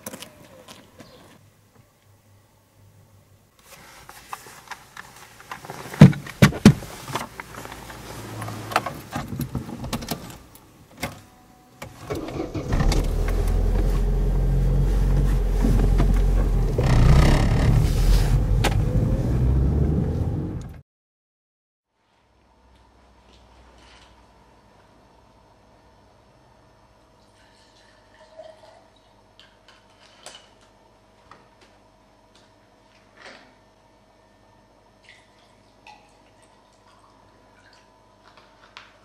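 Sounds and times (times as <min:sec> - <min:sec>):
car door shutting: 0:11.8 - 0:19.4
car engine starting and running: 0:11.8 - 0:20.8.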